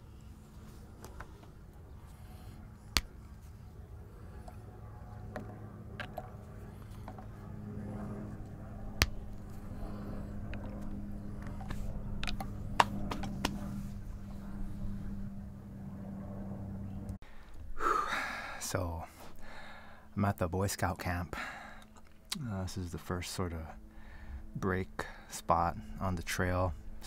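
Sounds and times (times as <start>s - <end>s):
low engine hum: 0.0s - 17.2s.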